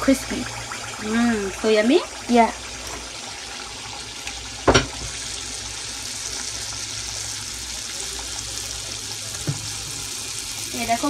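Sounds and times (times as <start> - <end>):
batter sizzling in hot oil: 0.0 - 11.0
short knock: 4.7 - 5.1.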